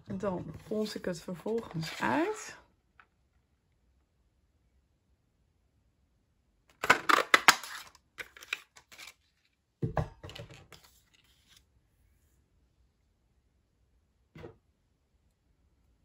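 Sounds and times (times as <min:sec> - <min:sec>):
knock on table: 0:09.8 - 0:10.3.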